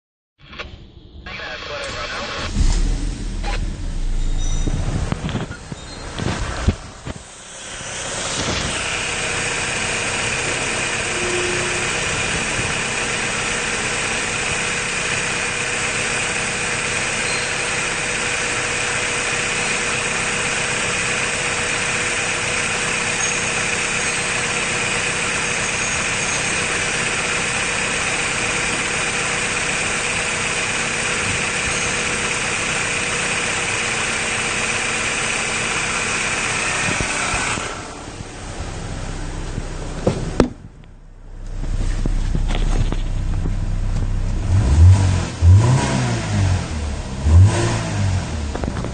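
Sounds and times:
car engine idling: 1.3 - 48.9.

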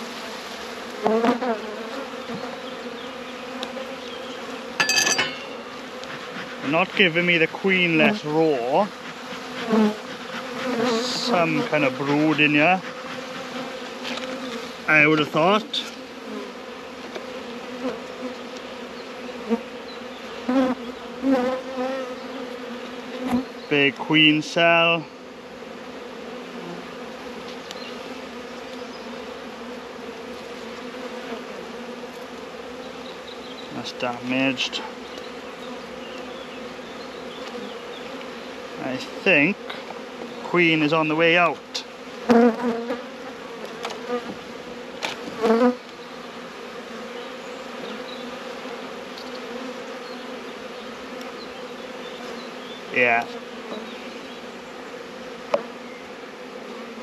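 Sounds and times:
honeybees buzzing: 0.0 - 57.0
hive tool clicks: 45.0 - 46.0.

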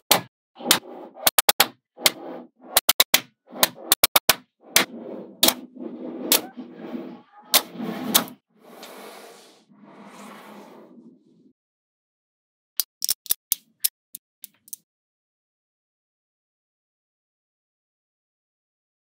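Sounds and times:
soft sliding rustle: 4.8 - 11.5
magnetic balls clicking together: 12.8 - 14.8.

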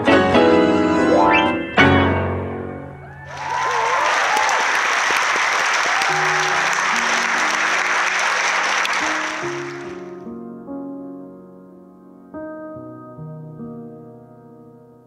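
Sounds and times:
soft slow piano notes: 0.0 - 3.3, 6.2 - 15.0
people whooping: 3.0 - 10.0
audience applauding and cheering: 3.0 - 10.2.

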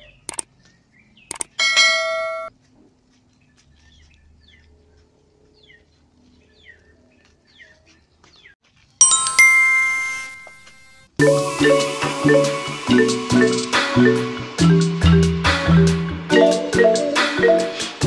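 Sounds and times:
bright bell-like chime: 9.0 - 12.0
chime sound effect: 9.0 - 14.3
marimba music: 9.0 - 18.0.

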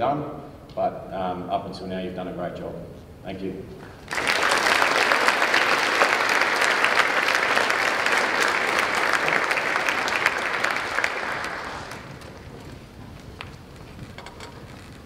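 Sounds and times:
audience applauding: 4.0 - 13.8.

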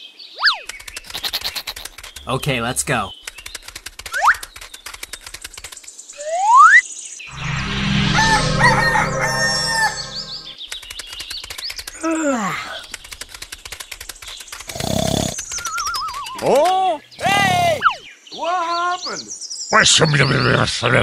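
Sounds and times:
rapid ticking cartoon footsteps: 0.6 - 6.1, 10.7 - 12.0, 12.8 - 15.9
rooster crowing: 8.1 - 10.6.

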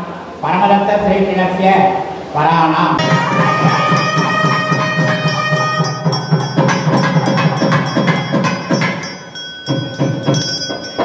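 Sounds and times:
reed pipe holding note: 3.0 - 8.3
drum strokes: 3.0 - 11.0.

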